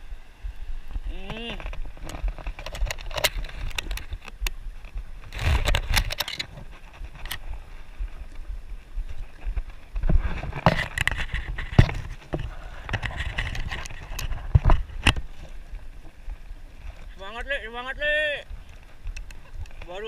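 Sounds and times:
wind buffeting microphone: 0:00.0 - 0:20.0
handling rustling and knocks: 0:09.0 - 0:17.2.

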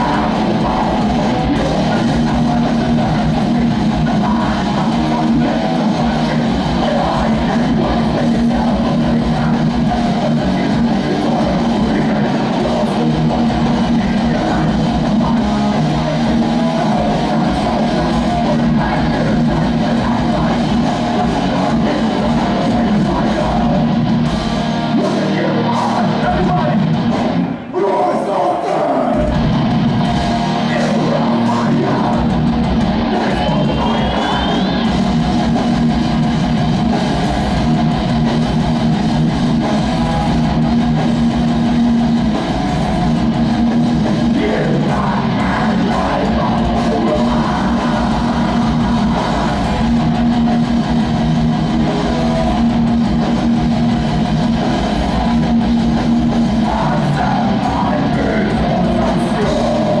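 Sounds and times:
bass guitar: 0:00.0 - 1:00.0
distorted electric guitars: 0:00.0 - 1:00.0
drums: 0:00.0 - 1:00.0
vocalist shouting: 0:27.6 - 0:29.4.

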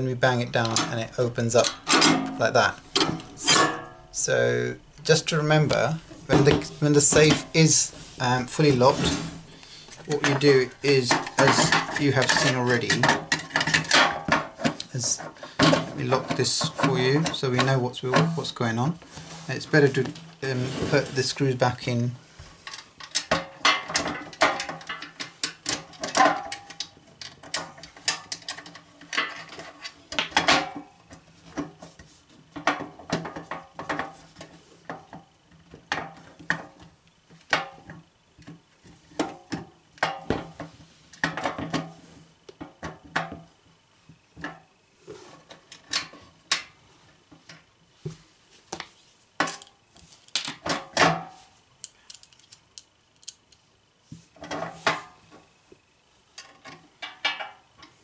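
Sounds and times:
metallic clicks and clatter: 0:51.8 - 0:53.6.

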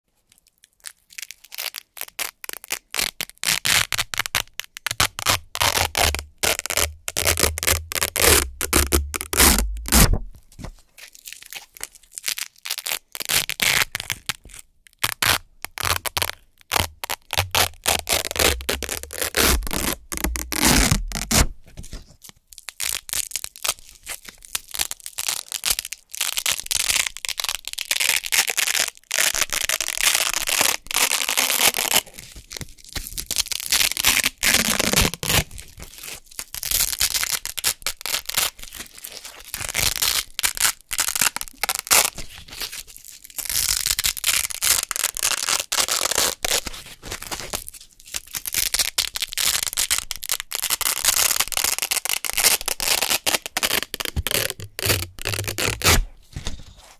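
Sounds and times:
hook-and-loop fastener ripping: 0:00.4 - 0:56.8.

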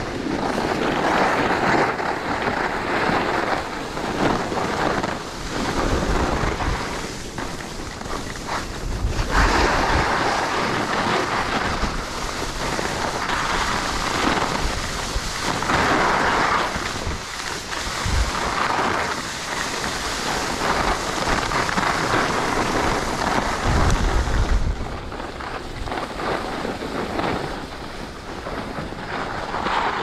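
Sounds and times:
skis scraping over snow: 0:00.0 - 0:30.0
wind buffeting microphone: 0:00.0 - 0:30.0.

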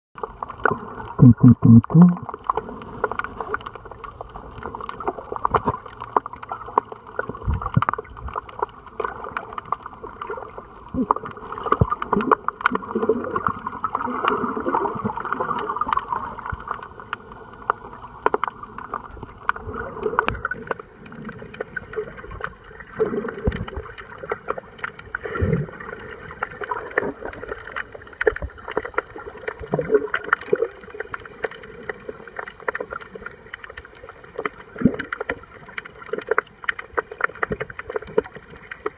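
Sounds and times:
water sloshing underwater: 0:00.2 - 0:38.9.

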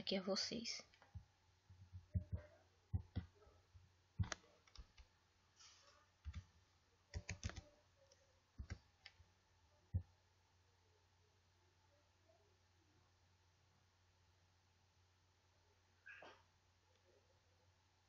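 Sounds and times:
faint low hum: 0:00.0 - 0:18.0
computer keyboard keystrokes: 0:04.2 - 0:05.1, 0:07.1 - 0:07.7, 0:08.6 - 0:09.2
mouse clicks: 0:04.2 - 0:05.1, 0:08.6 - 0:09.2.

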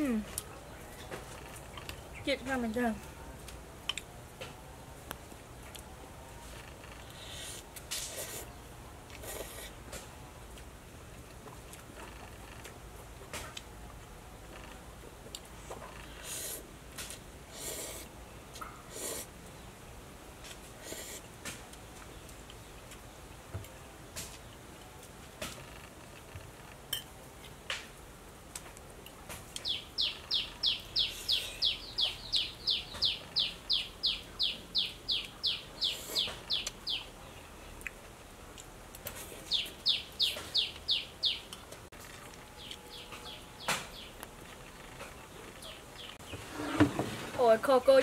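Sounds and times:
bird chirping: 0:29.6 - 0:37.9, 0:39.3 - 0:41.7, 0:42.5 - 0:46.9.

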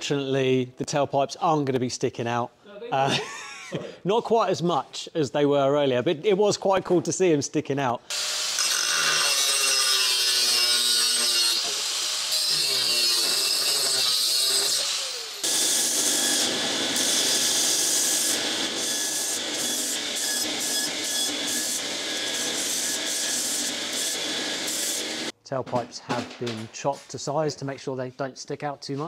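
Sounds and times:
belt sander grinding metal: 0:08.1 - 0:25.3
power tool with wavering pitch: 0:08.1 - 0:25.3.

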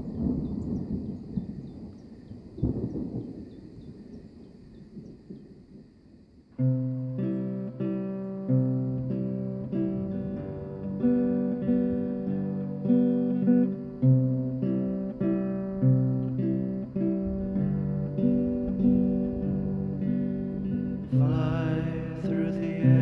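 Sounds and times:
acoustic guitar picked chords: 0:06.5 - 0:23.0.

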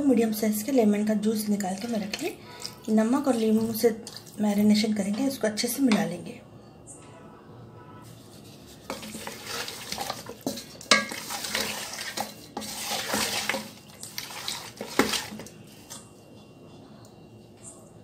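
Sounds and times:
wooden spatula scraping metal pot: 0:01.6 - 0:06.1, 0:08.0 - 0:16.9.

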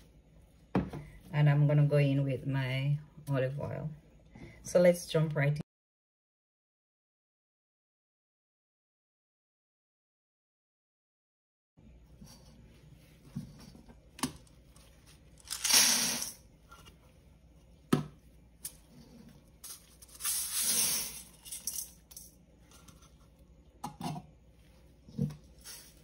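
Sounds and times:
dry seeds poured into metal bowl: 0:15.4 - 0:16.4, 0:19.6 - 0:22.3.

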